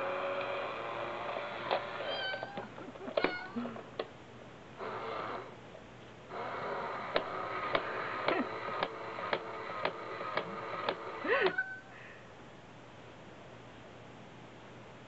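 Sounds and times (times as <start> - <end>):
coin bank motor whirring: 0.0 - 2.4, 4.8 - 5.6, 6.3 - 11.3.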